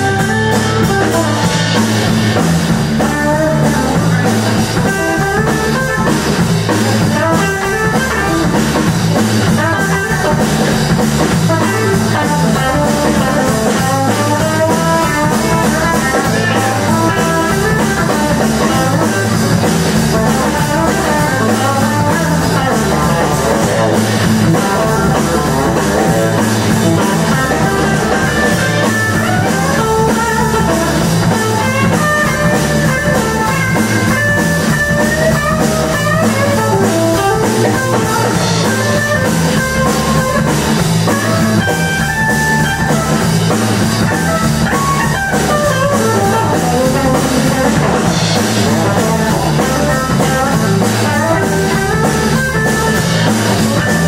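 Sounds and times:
bass line: 0.0 - 54.0
drum kit: 0.0 - 54.0
lead guitar: 0.0 - 54.0.

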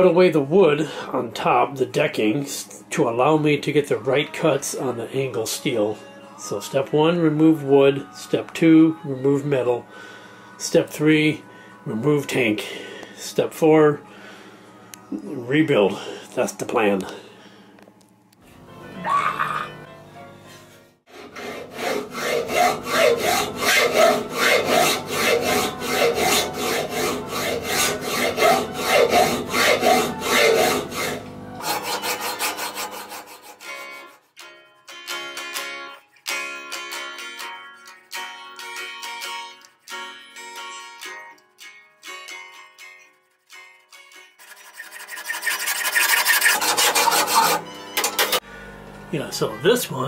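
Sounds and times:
background music: 0.0 - 48.5
hacksaw cutting metal: 21.1 - 34.3, 43.3 - 48.4.

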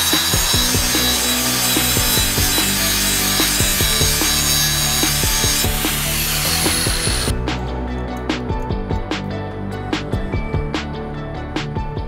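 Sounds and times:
angle grinder sharpening a blade: 0.0 - 7.3.

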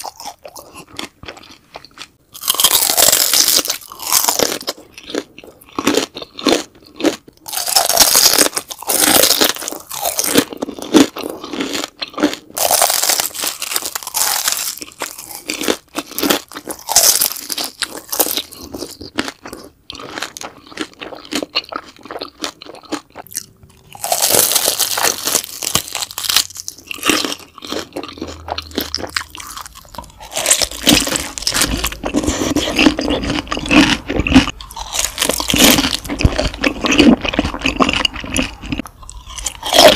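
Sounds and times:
wet chewing: 0.0 - 39.9
crisp bites: 23.9 - 39.9.

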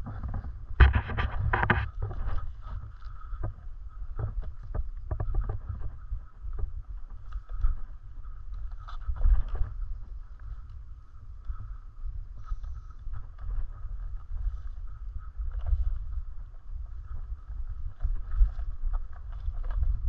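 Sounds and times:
wind rumbling on microphone: 0.0 - 20.0
bike clicks and rattles: 12.4 - 20.0.

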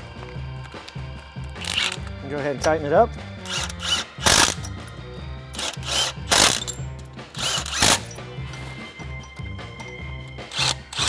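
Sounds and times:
background music: 0.0 - 11.0
cordless ratchet bursts: 1.6 - 2.1, 3.4 - 4.8, 5.5 - 8.2, 10.5 - 11.0.

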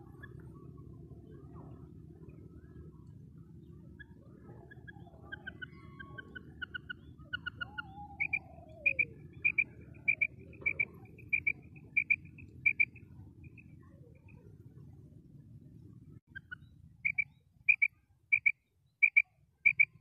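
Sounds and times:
quail calling: 4.0 - 13.1, 16.4 - 20.0.

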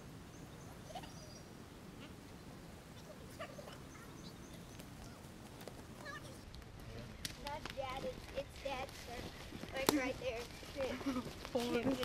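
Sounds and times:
faint clicks and rustles: 4.5 - 12.0.

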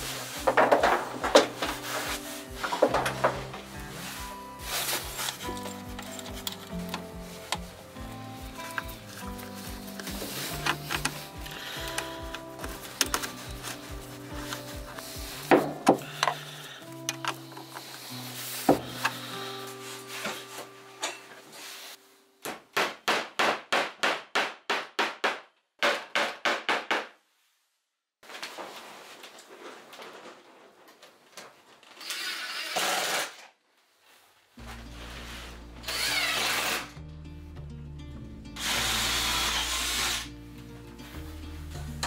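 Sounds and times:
background music with low notes: 0.0 - 22.4, 34.6 - 42.0
cordless drill drilling into wood: 32.0 - 33.4, 35.8 - 36.9, 38.6 - 40.3.

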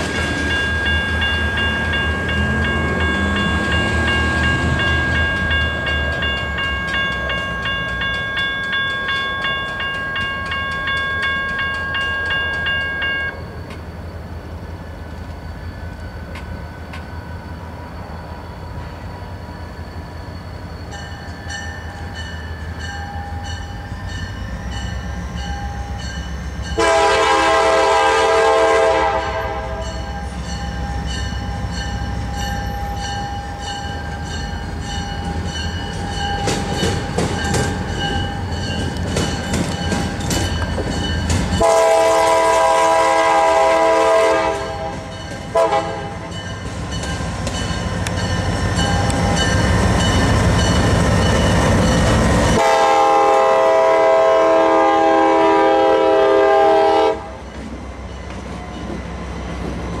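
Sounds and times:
train wheels clacking on rails: 0.0 - 14.0, 18.8 - 60.0
diesel locomotive engines rumbling: 0.0 - 60.0
train horn blasts: 26.7 - 30.1, 41.6 - 46.4, 52.6 - 57.4.

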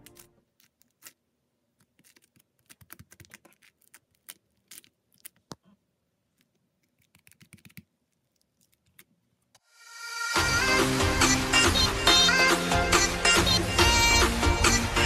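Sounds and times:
slime clicking and crackling: 0.0 - 5.7, 6.3 - 9.2.

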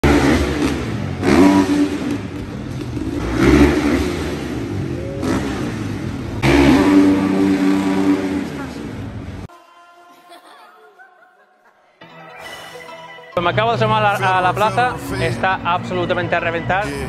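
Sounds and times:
motocross bikes revving: 0.0 - 9.5.

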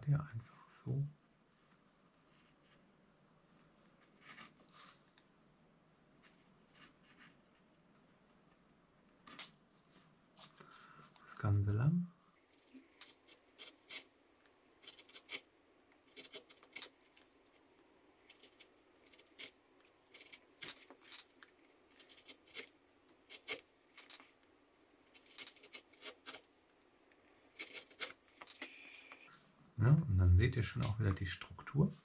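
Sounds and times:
carving gouge scratching wood: 12.5 - 14.2, 14.8 - 17.2, 18.2 - 21.3, 21.9 - 24.4, 25.0 - 26.5, 27.5 - 28.6.

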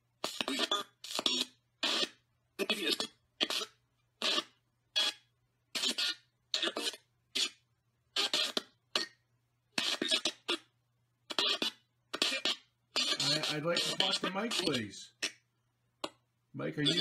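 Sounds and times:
chopped garbled voice fragments: 0.2 - 5.1, 5.8 - 7.6, 8.2 - 9.2, 9.8 - 10.7, 11.3 - 15.4, 16.0 - 17.0
static: 9.7 - 15.4, 16.0 - 17.0.

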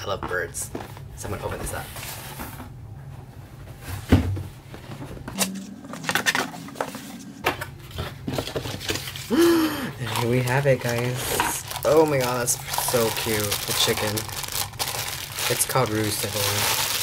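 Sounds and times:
cardboard knocks and scrapes: 3.8 - 5.3.

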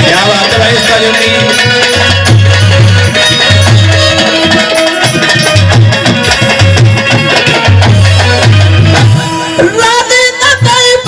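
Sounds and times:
dholak drum beating: 0.0 - 11.0
held melody line: 0.0 - 11.0.

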